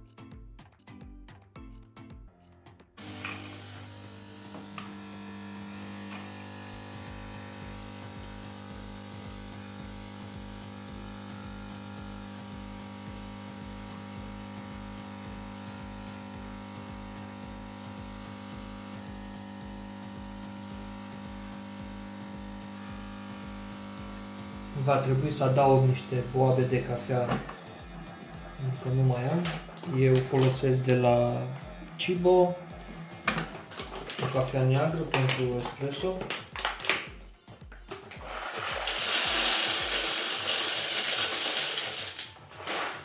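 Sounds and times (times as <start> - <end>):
espresso machine pump humming: 3.0 - 36.4, 37.7 - 42.3.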